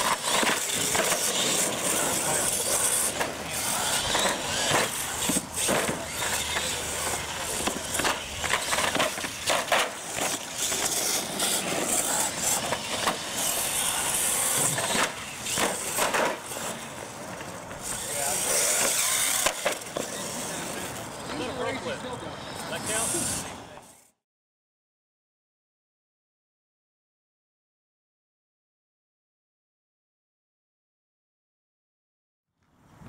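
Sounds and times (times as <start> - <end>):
trucks knocking off ramps: 0.0 - 21.1
tyres rolling on concrete: 0.0 - 24.0
toy truck motors running: 0.0 - 24.2.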